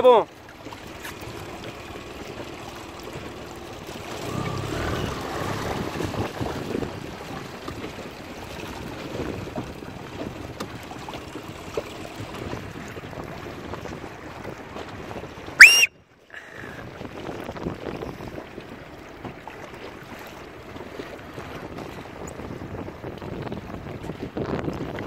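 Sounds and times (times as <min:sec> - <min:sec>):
choppy water: 0:00.0 - 0:25.0
wind on microphone: 0:04.2 - 0:15.9, 0:16.6 - 0:19.8, 0:20.7 - 0:25.0
rising whistle: 0:15.6 - 0:15.9.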